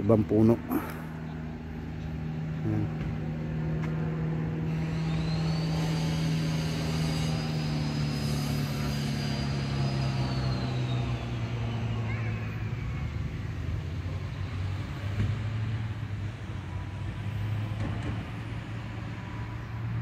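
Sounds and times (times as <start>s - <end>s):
high whine of passing vehicle: 0.0s - 20.0s
vehicle engine hum: 0.0s - 20.0s.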